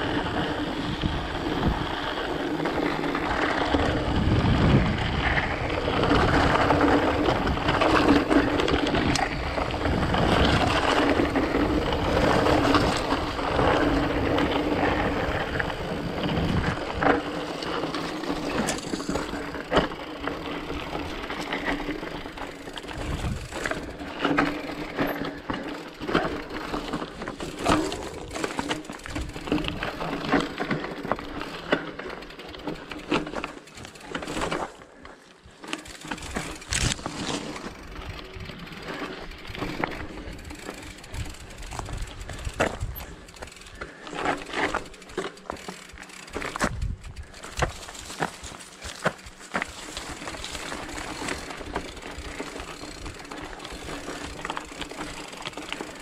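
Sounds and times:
bike rattling: 0.0 - 56.0
bike tyre noise on stony trail: 0.0 - 56.0
knocks and clatter from rough ground: 0.2 - 56.0
wind buffeting microphone: 3.2 - 17.1, 22.8 - 23.9, 41.0 - 43.8, 46.5 - 48.0.

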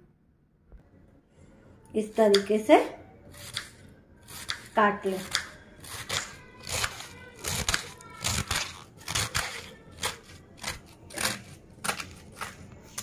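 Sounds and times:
knife slicing cabbage on board: 4.3 - 13.0.

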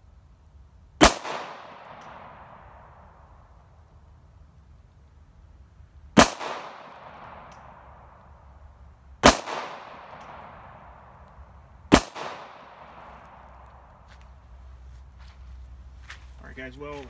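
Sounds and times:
pistol shots with echo: 1.0 - 3.2, 6.2 - 7.9, 9.2 - 10.9, 11.9 - 13.6.

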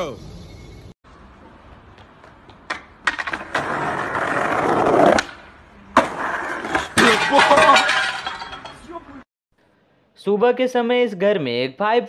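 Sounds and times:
skate wheels rolling on concrete: 1.1 - 9.0.

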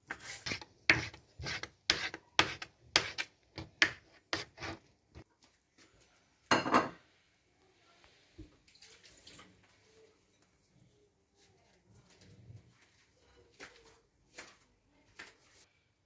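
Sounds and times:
knife chopping on wooden board: 0.4 - 4.8.

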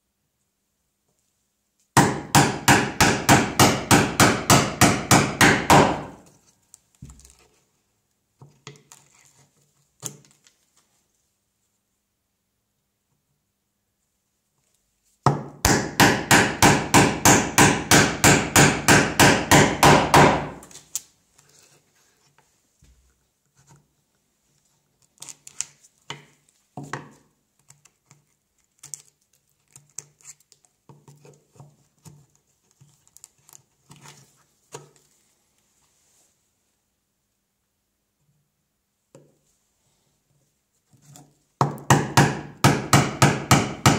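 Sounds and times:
mallet striking chisel into wood: 2.0 - 6.2, 15.3 - 20.6, 41.6 - 43.9.

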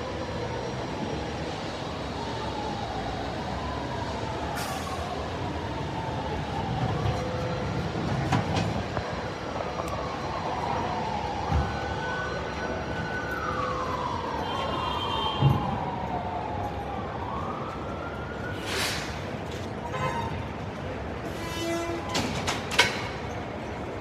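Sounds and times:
siren wailing: 0.0 - 18.8.

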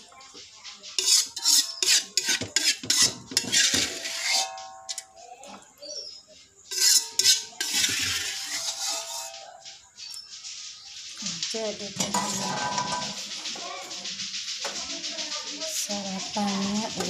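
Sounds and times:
spatula scraping a wok: 1.0 - 5.2, 6.6 - 9.5, 11.8 - 14.3, 15.8 - 17.0
metal ringing: 3.5 - 5.3, 12.0 - 13.4.

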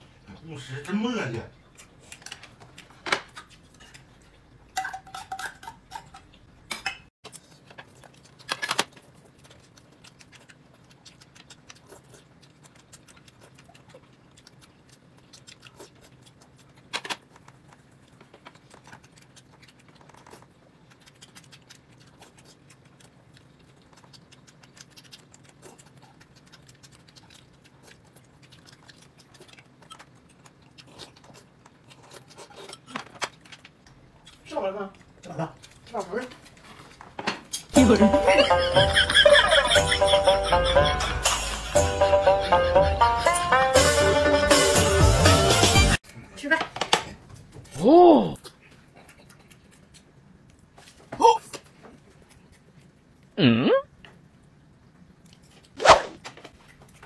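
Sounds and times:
dishes and cutlery clinking: 4.7 - 7.1.

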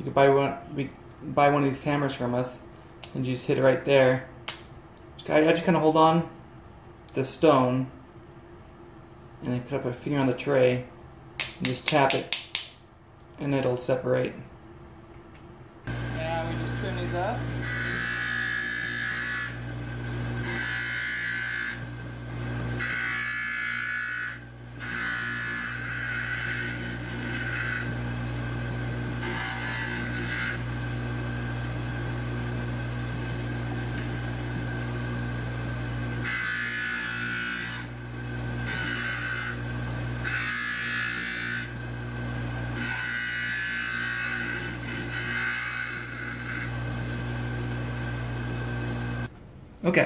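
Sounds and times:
trimmer motor hum: 15.9 - 49.3
stone grinding on abrasive wheel: 16.2 - 19.7, 20.3 - 22.0, 22.7 - 28.0, 28.8 - 30.7, 36.1 - 41.8, 42.7 - 46.8.

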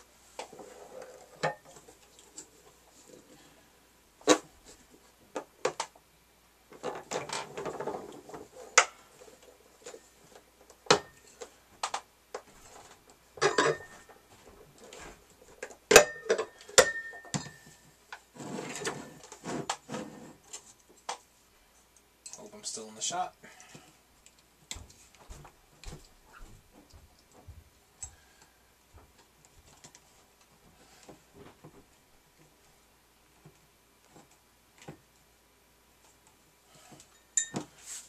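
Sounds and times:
glass bottles clinking: 13.4 - 14.0, 16.0 - 17.7, 37.2 - 37.7
soft rustling: 37.7 - 38.0.

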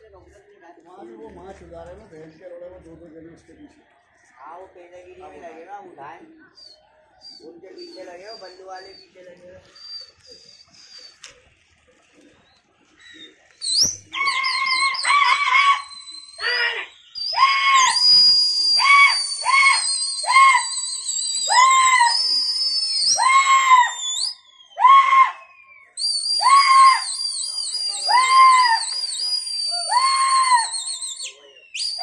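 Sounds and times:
long high wavering whistles: 13.6 - 32.0.

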